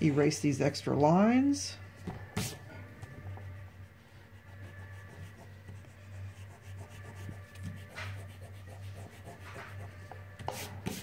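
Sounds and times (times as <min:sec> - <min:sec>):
eraser rubbing on paper: 0:02.4 - 0:02.6, 0:03.8 - 0:11.0.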